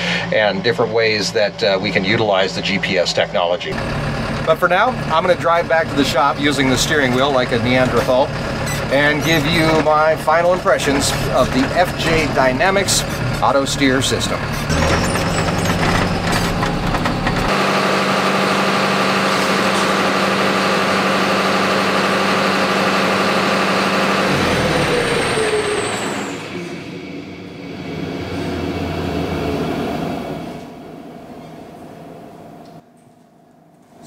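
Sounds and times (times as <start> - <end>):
diesel tractor engine running: 0.0 - 32.8
low hum: 24.2 - 33.8.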